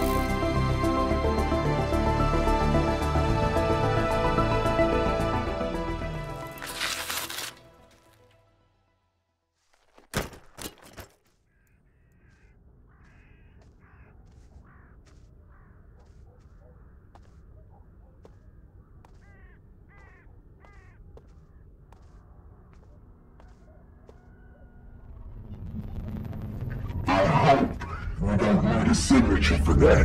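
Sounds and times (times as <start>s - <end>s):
birds calling harshly: 11.3s - 23.6s
low outdoor rumble: 24.5s - 30.0s.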